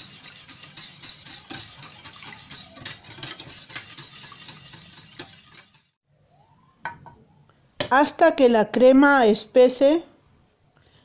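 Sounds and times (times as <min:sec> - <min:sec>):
whisk scraping a pan: 0:00.0 - 0:06.0
whisk swishing liquid: 0:00.0 - 0:06.0.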